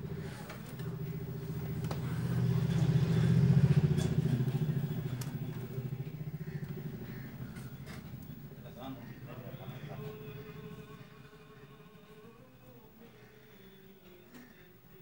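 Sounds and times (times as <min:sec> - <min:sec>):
small engine passing by: 0:00.0 - 0:11.9.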